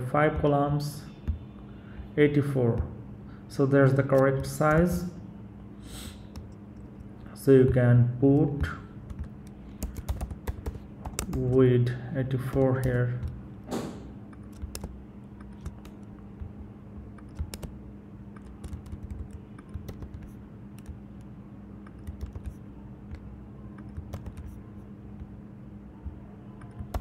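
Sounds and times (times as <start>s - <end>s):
low electrical hum: 0.0s - 27.0s
computer keyboard key clicks: 8.3s - 11.5s, 14.3s - 16.1s, 17.2s - 17.8s, 18.4s - 21.0s, 21.9s - 23.2s.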